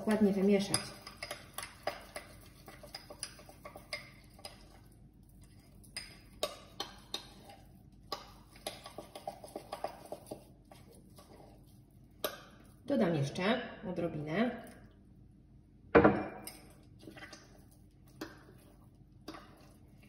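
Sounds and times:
metal spoon stirring in glass: 0.0 - 4.8.

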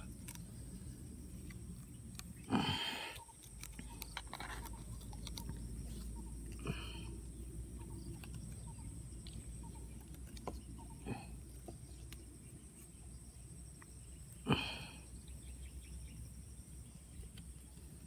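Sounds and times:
faint calls: 1.9 - 12.0.

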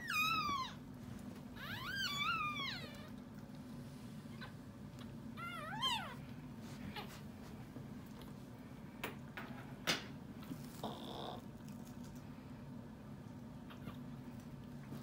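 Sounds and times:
puppies squealing: 0.0 - 0.8, 1.6 - 3.1
steady low hum: 0.0 - 15.0.

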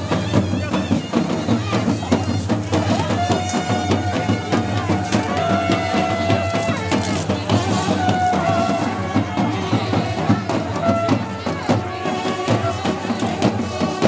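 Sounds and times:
fast busy drumming: 0.0 - 14.0
wind instruments holding notes: 0.0 - 14.0.

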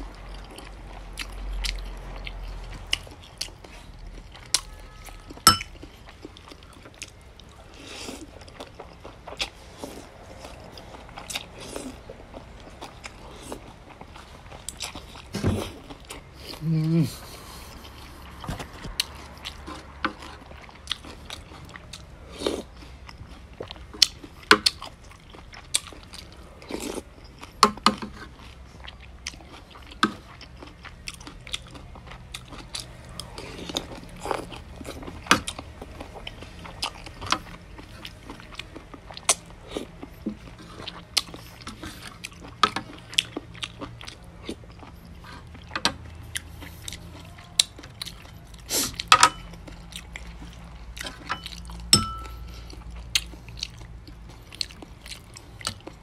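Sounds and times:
person chewing noodle soup: 0.0 - 56.0
chopsticks and spoon clicking on dishes: 51.0 - 52.6.

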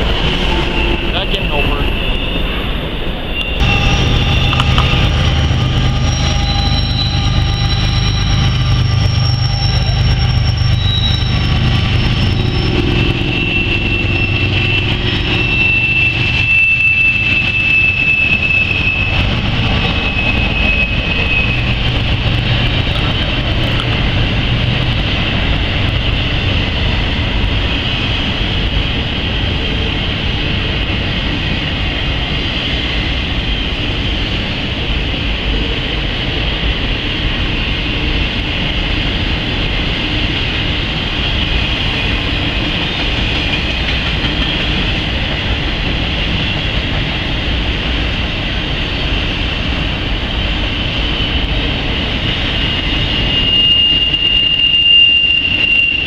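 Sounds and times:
high wheel squealing: 0.0 - 28.9, 50.6 - 56.0
freight train wheels on rails: 0.0 - 56.0
low hum: 3.4 - 27.5.

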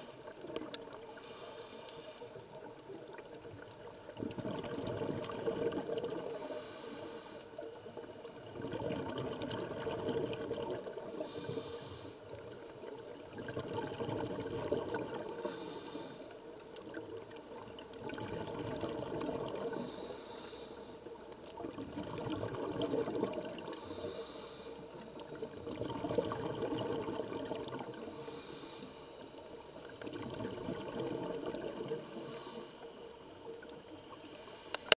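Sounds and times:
regulator breath hiss: 1.1 - 2.4, 6.3 - 7.6, 11.2 - 12.3, 15.4 - 16.4, 19.7 - 21.1, 23.7 - 25.0, 28.0 - 29.2, 32.1 - 33.0, 34.1 - 35.0
exhaled air bubbling: 2.4 - 6.8, 7.7 - 35.0.

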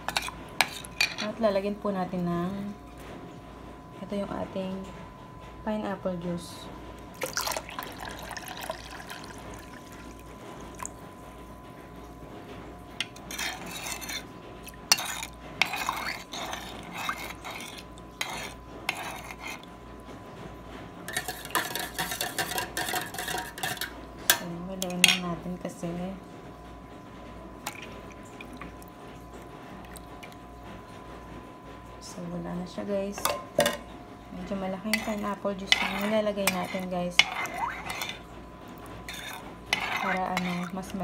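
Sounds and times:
spoon scraping and clinking bowl: 0.0 - 1.4, 13.0 - 19.7, 21.1 - 23.9, 34.8 - 38.3, 39.0 - 41.0.

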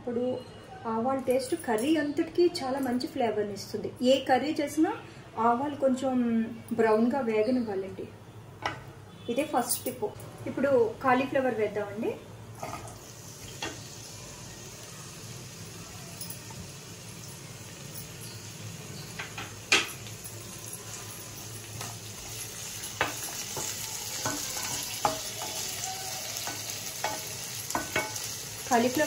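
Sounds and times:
florets sizzling in hot oil: 10.6 - 29.0.

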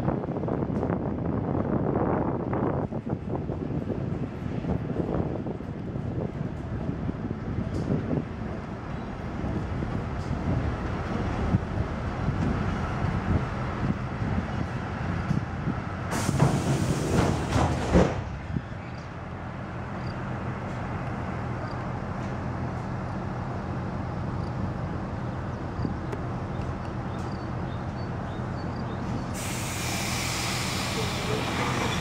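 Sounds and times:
train engine and wheels rumbling: 0.0 - 32.0
loud hiss: 29.3 - 32.0.

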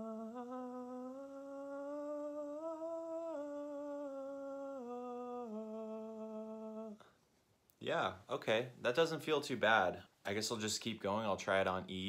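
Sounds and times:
man singing soft scale: 0.0 - 7.0.

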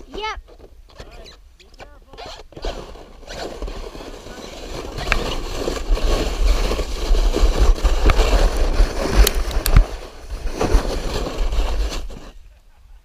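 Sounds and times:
sled scraping on snow: 0.0 - 12.5
wind rumbling on microphone: 2.9 - 12.4.

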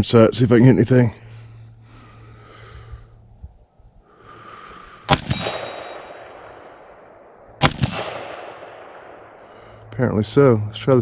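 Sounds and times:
rolling echo: 4.1 - 11.0
metallic clang of steel target: 5.1 - 6.5, 7.6 - 9.3
rifle shots: 5.1 - 9.9.

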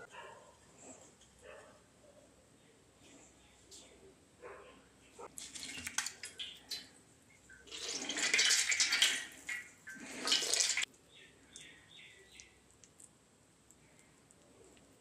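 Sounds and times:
water splashing into steel bowl: 5.4 - 6.9, 7.5 - 10.9.

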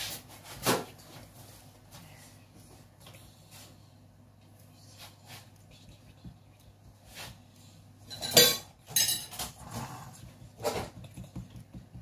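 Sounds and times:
utensils and dishes clinking: 8.0 - 9.6.

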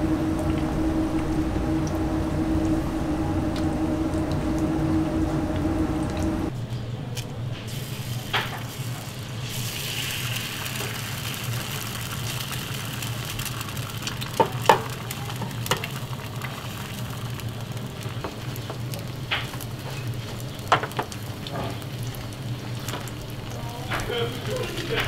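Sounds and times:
egg sizzling on griddle: 7.7 - 25.0.

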